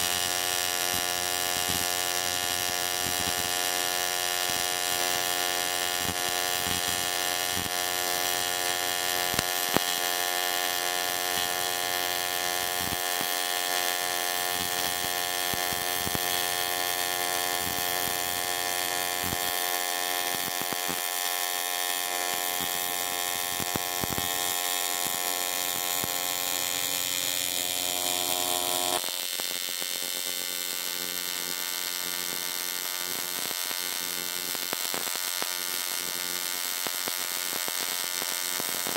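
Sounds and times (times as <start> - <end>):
welding arc buzzing: 0.0 - 38.9.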